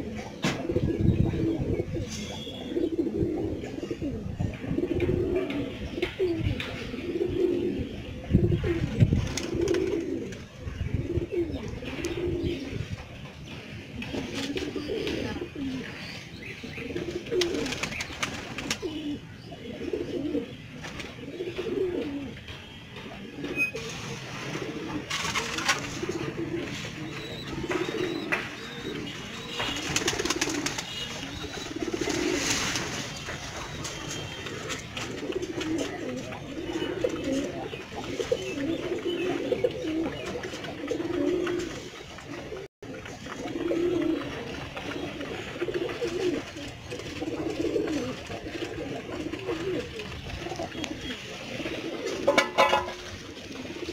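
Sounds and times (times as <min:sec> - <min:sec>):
pigeons cooing: 0:00.0 - 0:53.9
wings flapping: 0:17.4 - 0:18.9, 0:25.0 - 0:26.1, 0:29.6 - 0:36.2.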